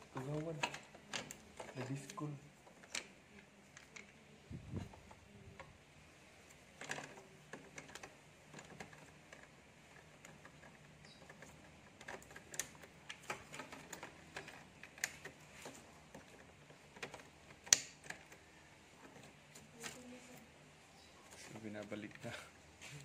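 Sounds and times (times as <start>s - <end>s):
small plastic clicks and taps: 6.5s - 18.4s.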